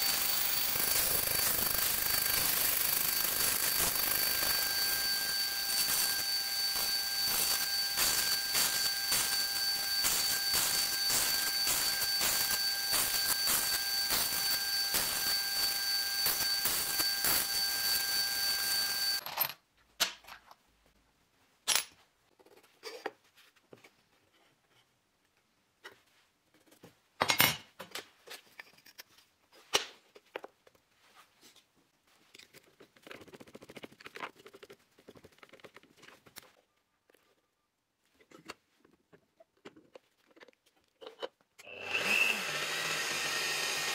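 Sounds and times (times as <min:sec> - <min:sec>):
bandsaw cutting wood: 0:41.7 - 0:43.9.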